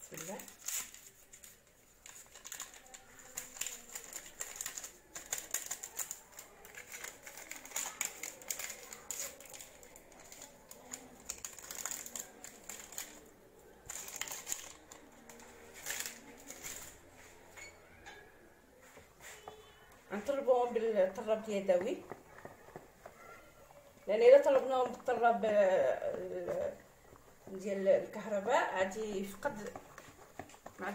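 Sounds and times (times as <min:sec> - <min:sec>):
sachets crinkling and tearing: 0:00.0 - 0:17.1
sachet tapping clicks: 0:01.4 - 0:13.2.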